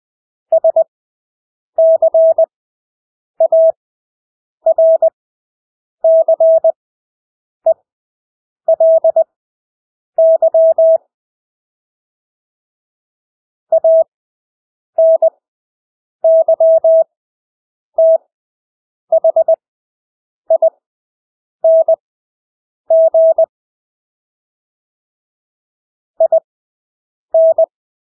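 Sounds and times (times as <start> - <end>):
morse code beeps: 1.8 - 2.5, 3.4 - 3.8, 4.7 - 5.2, 6.1 - 6.8, 8.7 - 9.2, 10.2 - 11.0, 13.7 - 14.1, 15.0 - 15.3, 16.3 - 17.1, 18.0 - 18.2, 19.1 - 19.6, 21.7 - 22.0, 22.9 - 23.5, 26.2 - 26.5, 27.4 - 27.7.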